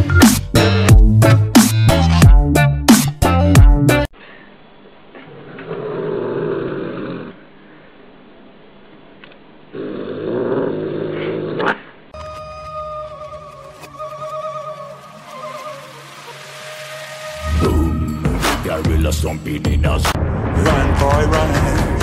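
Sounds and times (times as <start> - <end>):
cat growling: 5.2 - 7.4, 9.7 - 11.9.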